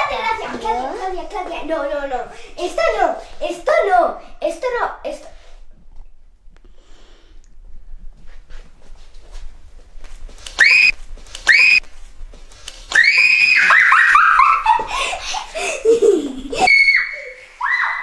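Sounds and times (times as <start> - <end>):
girl shrieking and screaming: 13.0 - 14.7, 16.6 - 18.0
girl laughing: 13.6 - 17.6.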